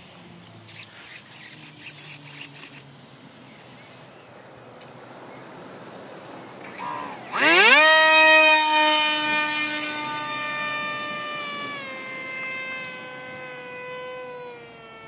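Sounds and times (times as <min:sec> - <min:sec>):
electric motor propeller whine: 0:00.1 - 0:02.9, 0:06.6 - 0:15.0.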